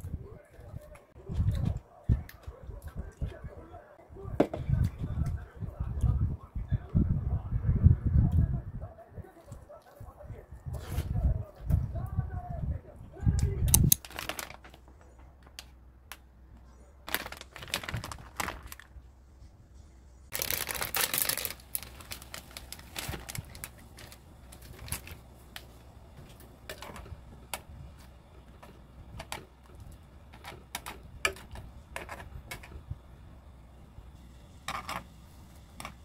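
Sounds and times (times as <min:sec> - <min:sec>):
packet crinkling: 0:13.8 - 0:15.0, 0:17.0 - 0:19.0, 0:20.3 - 0:25.8
noodles boiling in water: 0:20.3 - 0:36.0.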